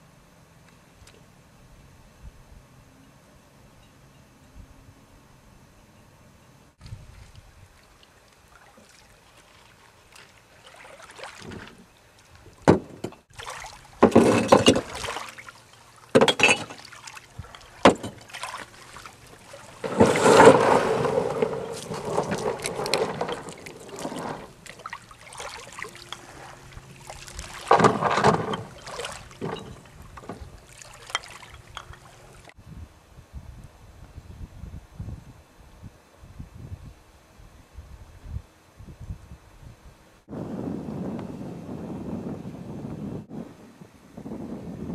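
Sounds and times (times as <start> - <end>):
crunches and scrapes on pebbles: 19.8 - 24.6.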